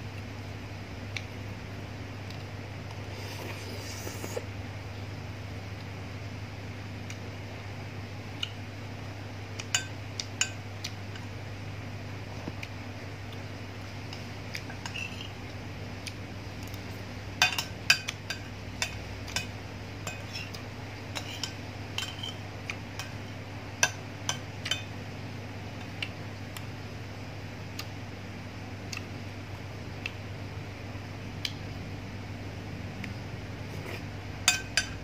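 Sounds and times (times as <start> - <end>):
metal spoon clinking on a plate: 17.4 - 20.6, 21.2 - 22.4, 34.5 - 35.0.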